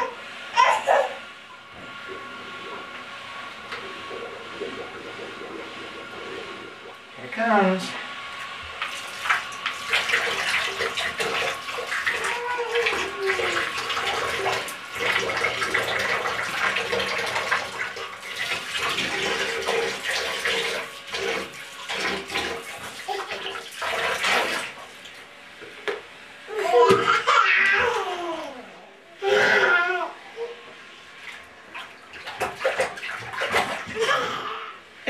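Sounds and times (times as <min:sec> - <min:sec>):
water splashing in bathtub: 0:01.8 - 0:25.3, 0:31.1 - 0:34.6.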